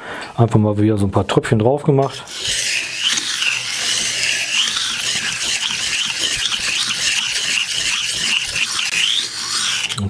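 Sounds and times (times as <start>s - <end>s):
knife scraping on whetstone: 2.0s - 10.0s.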